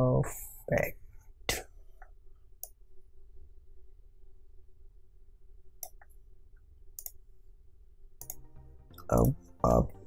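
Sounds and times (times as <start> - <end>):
faint steady hum: 0.0 - 10.0
computer mouse clicks: 5.8 - 6.2, 7.0 - 7.2, 8.2 - 8.4.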